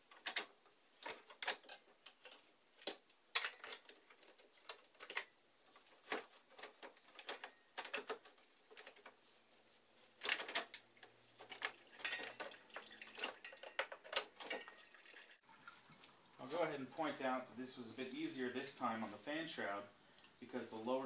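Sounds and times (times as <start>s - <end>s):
plastic and metal clicks and rattles: 0.1s - 9.2s, 10.2s - 14.7s.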